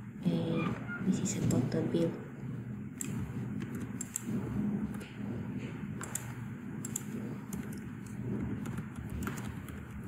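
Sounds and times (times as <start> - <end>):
steady low hum: 0.0 - 10.0
computer keyboard keys clicking: 6.0 - 10.0.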